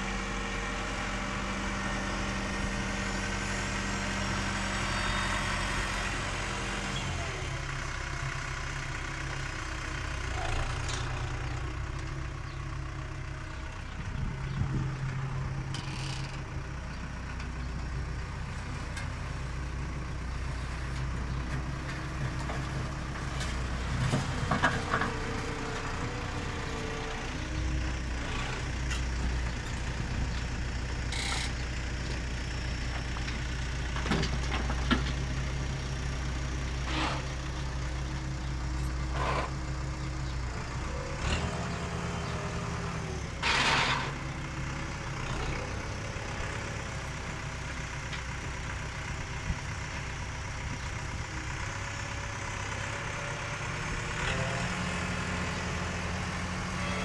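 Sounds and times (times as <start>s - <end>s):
tractor diesel engine running: 0.0s - 57.0s
bucket loader clanks and scrapes: 21.0s - 27.2s, 33.0s - 35.4s, 36.8s - 37.7s, 38.8s - 40.3s, 41.2s - 46.8s.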